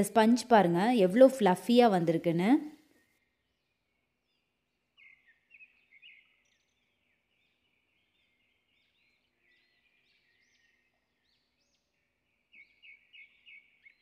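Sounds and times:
small birds chirping: 0:02.8 - 0:14.0.

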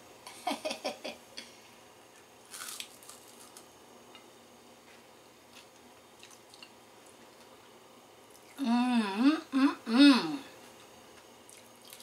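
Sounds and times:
crunchy bite: 0:02.5 - 0:03.7.

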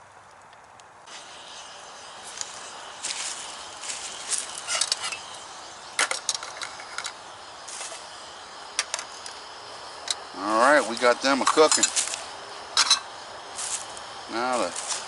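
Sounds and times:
camp stove burner hissing: 0:00.5 - 0:15.0
metal pots clinking on grate: 0:12.8 - 0:13.1.

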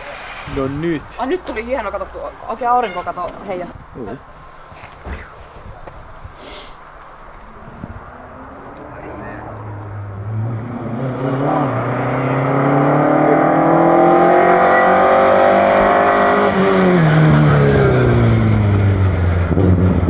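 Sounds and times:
rally car engine accelerating: 0:07.6 - 0:20.0.

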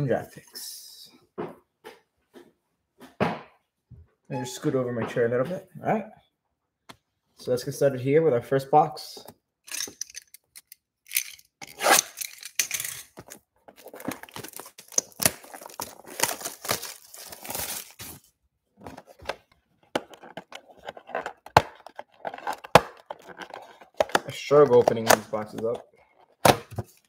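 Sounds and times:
plastic wrap tearing and crinkling: 0:11.1 - 0:18.3.

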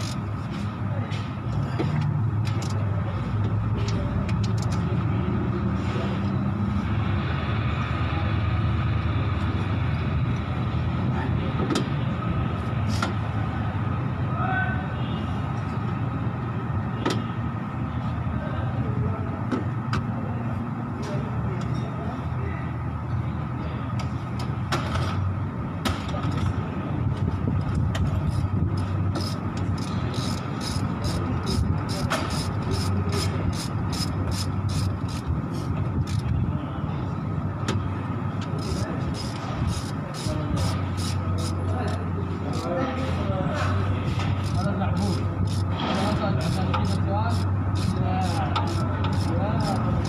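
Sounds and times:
low mechanical rumble: 0:00.0 - 0:50.0
light clicks of engine parts: 0:01.1 - 0:05.0.

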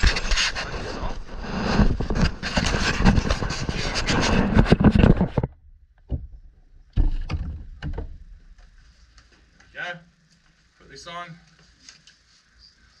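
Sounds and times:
handling noise on camera microphone: 0:00.0 - 0:09.6.

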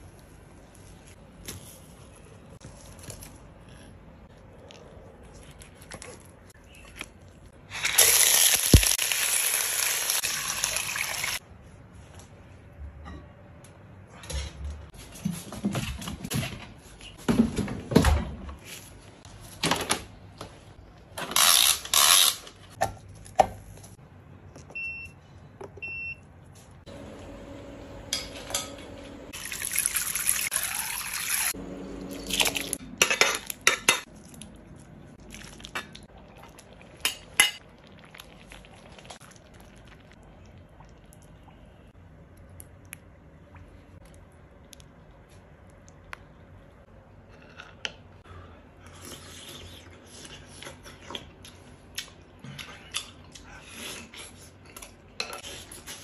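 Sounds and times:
liquid pouring and splashing: 0:29.3 - 0:31.6.

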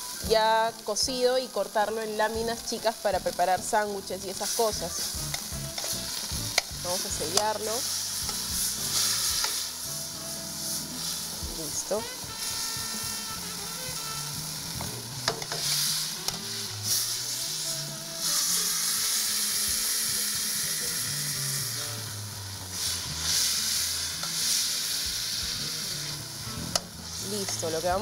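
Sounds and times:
meat sizzling in hot oil: 0:00.0 - 0:28.0
metal tongs clicking on pan: 0:05.2 - 0:07.7, 0:15.2 - 0:15.7.

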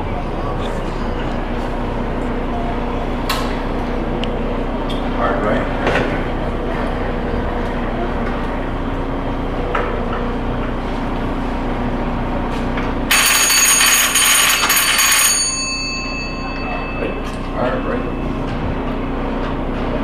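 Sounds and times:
steady hum: 0:00.0 - 0:13.7, 0:15.3 - 0:20.0
telegraph bell ringing: 0:13.1 - 0:19.2.

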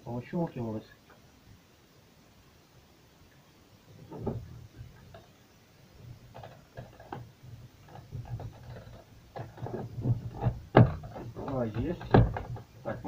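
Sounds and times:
plastic trim knocking and clicking: 0:07.9 - 0:12.7.

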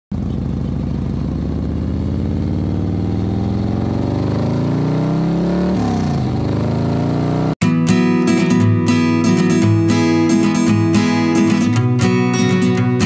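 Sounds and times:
motorcycle engine accelerating: 0:00.1 - 0:07.6.

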